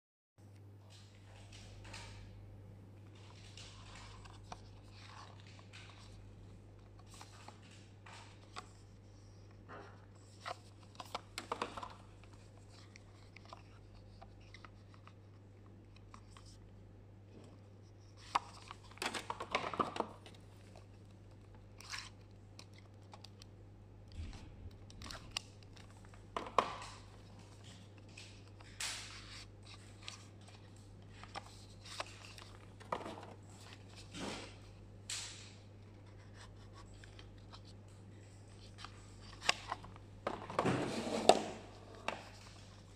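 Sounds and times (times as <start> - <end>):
low steady hum: 0.4 - 42.9
cardboard drawers scraping: 40.5 - 42.1.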